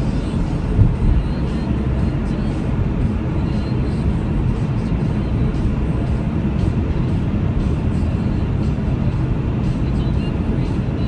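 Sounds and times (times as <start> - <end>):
car engine: 0.0 - 11.0.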